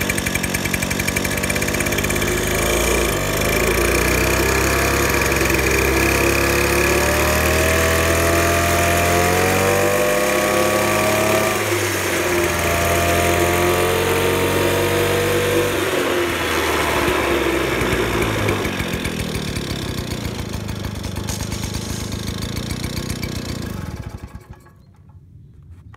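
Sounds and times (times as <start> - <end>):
moped engine running: 0.0 - 25.9.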